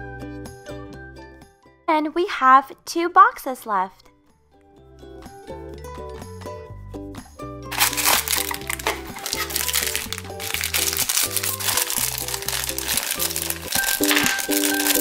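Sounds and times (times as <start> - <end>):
plastic wrapping crinkling: 7.7 - 15.0.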